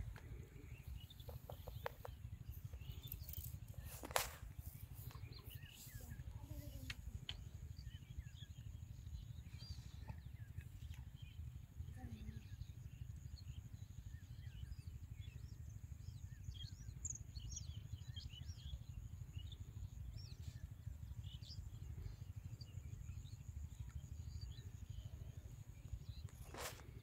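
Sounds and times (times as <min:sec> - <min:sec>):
steady low rumble: 0:00.0 - 0:10.6
small birds chirping: 0:00.0 - 0:27.0.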